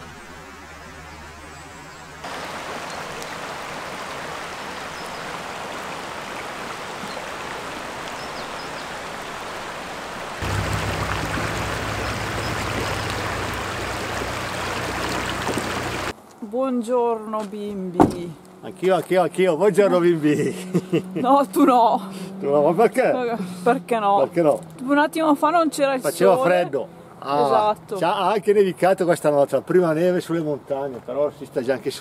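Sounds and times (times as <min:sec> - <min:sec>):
stream rushing over rocks: 0:02.2 - 0:16.2.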